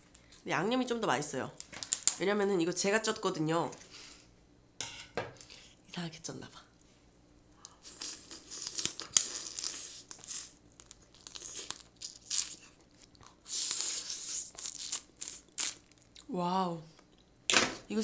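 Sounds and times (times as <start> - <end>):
sucking meat from shell: 7.6 - 15.9
crab shell crunching: 7.6 - 16.2.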